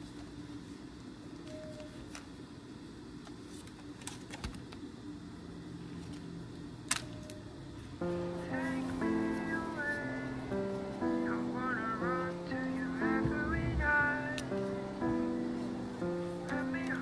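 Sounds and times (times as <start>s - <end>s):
soft guitar music: 8.0s - 17.0s.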